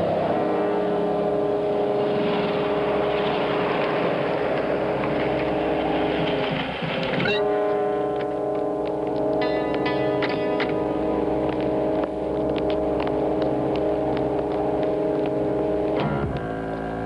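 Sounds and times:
rising sweep: 0.0 - 16.8
train horn: 2.1 - 4.4, 7.3 - 8.5
music: 5.4 - 17.0.

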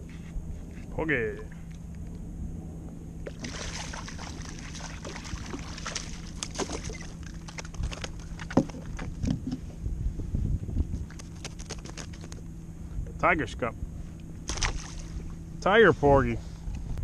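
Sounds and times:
fish splashing at surface: 3.3 - 9.0, 14.5 - 15.2.

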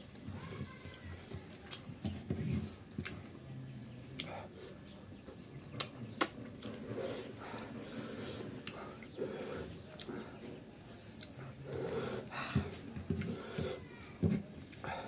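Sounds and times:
chewing and mouth noises: 8.5 - 10.2.

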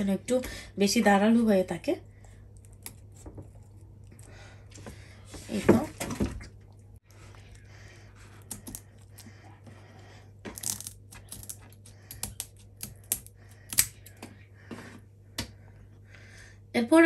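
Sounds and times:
scissors snipping: 10.6 - 14.2.

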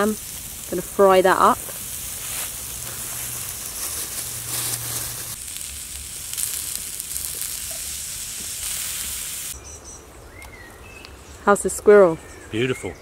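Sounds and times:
meat sizzling in a frying pan: 0.0 - 9.6.

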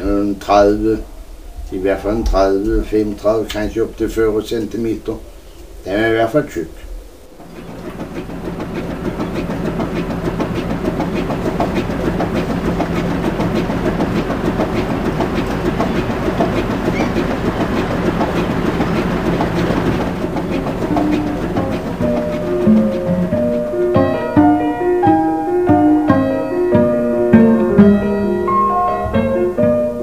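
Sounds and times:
low hum: 0.0 - 23.8
machine clattering: 7.3 - 24.4.

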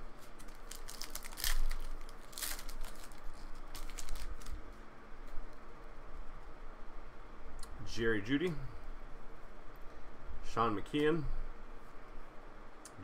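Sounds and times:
cards and wrappers rustling: 0.1 - 4.7.

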